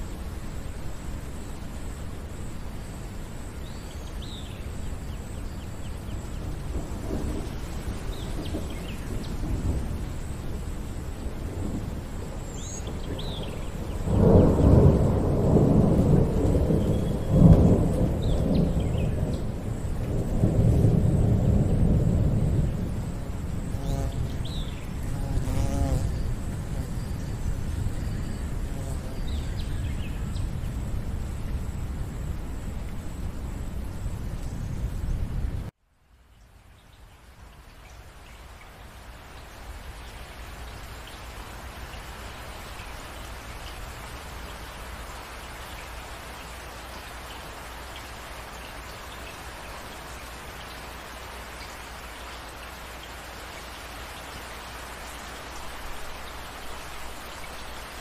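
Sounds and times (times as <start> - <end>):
low rumble of thunder: 0.0 - 35.7
rainfall: 0.0 - 58.0.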